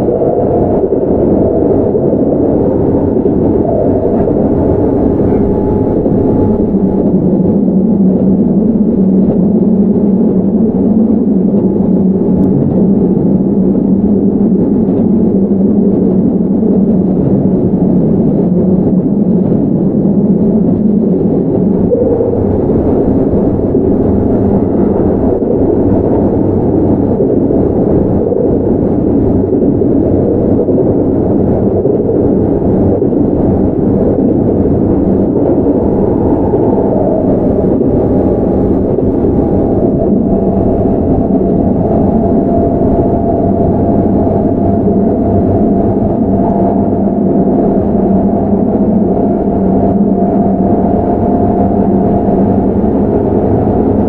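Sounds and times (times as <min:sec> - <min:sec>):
train wheels rumbling on rail: 0:00.0 - 0:54.0
train motor hum: 0:00.5 - 0:08.0
faint higher tone: 0:03.6 - 0:07.2, 0:35.7 - 0:52.4.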